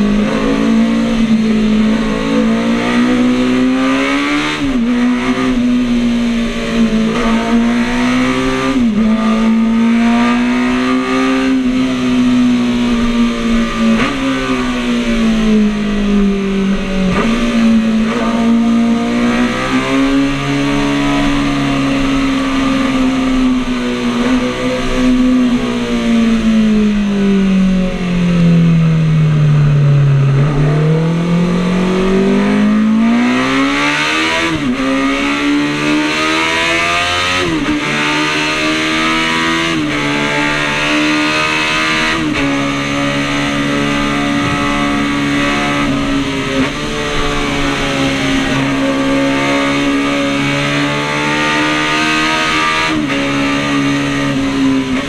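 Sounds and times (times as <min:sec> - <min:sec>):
motorcycle engine at high revs: 0:00.0 - 0:29.0, 0:30.2 - 0:55.0
rushing wind noise: 0:39.3 - 0:50.9.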